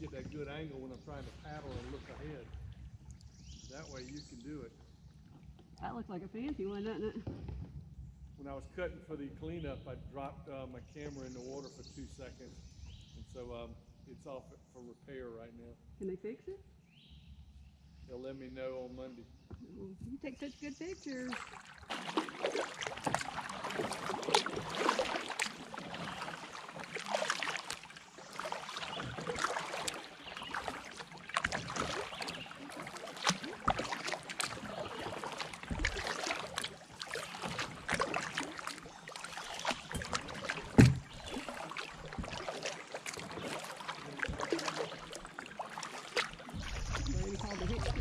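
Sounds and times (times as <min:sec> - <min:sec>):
paddle splashing in water: 0:00.0 - 0:04.5, 0:20.4 - 0:48.0
water drips: 0:20.8 - 0:48.0
kayak knocks: 0:21.3 - 0:48.0.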